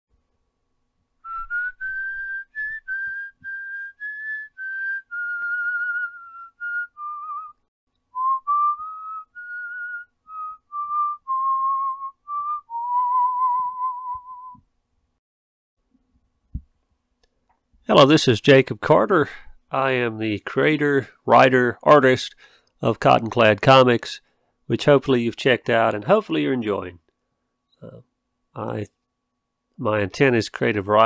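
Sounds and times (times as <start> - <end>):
person whistling a tune: 1.3 - 7.6, 8.2 - 14.6.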